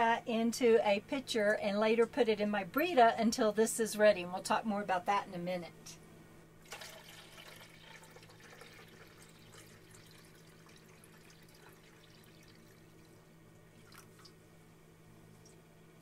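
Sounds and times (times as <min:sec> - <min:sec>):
steady low hum: 0:00.0 - 0:16.0
water pouring into pitcher: 0:06.6 - 0:14.4.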